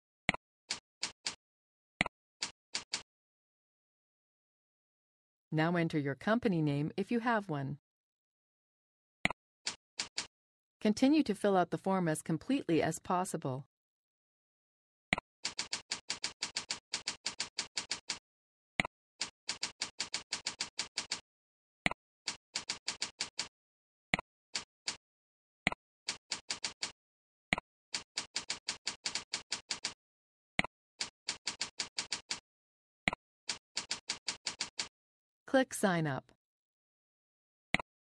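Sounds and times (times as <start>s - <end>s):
computer keyboard typing: 2.8s - 3.0s, 10.0s - 10.3s, 15.4s - 18.2s, 19.2s - 21.2s, 22.3s - 23.5s, 26.1s - 27.0s, 28.0s - 30.0s, 31.0s - 32.4s, 33.5s - 34.9s.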